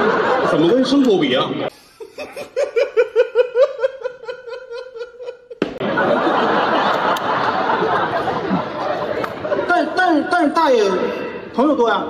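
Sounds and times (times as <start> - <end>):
audience laughing: 0.0 - 10.3
high-pitched laugh: 1.7 - 8.9.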